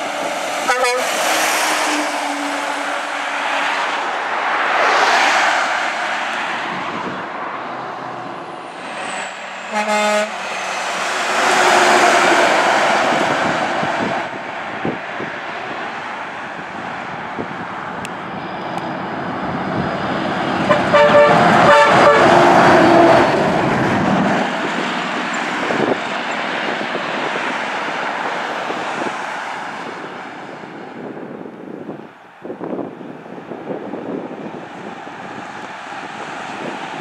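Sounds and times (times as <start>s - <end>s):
trucks driving past: 0.0s - 37.0s
truck air horn blasts: 0.6s - 3.3s, 9.6s - 10.5s, 20.7s - 22.6s.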